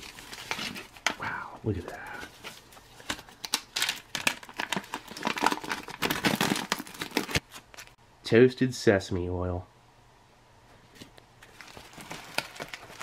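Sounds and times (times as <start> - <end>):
plastic pouch crinkling: 1.8 - 8.0, 11.5 - 13.0.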